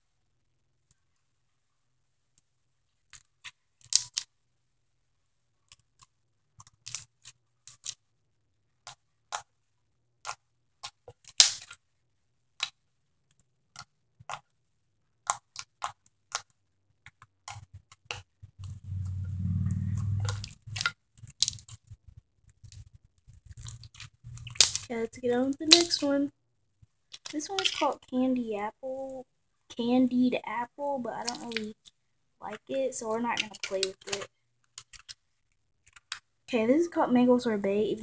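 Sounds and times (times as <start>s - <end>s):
slime squished by hand popping: 10.3s - 11.8s, 23.6s - 24.9s, 25.6s - 26.1s
low hum: 18.6s - 20.8s.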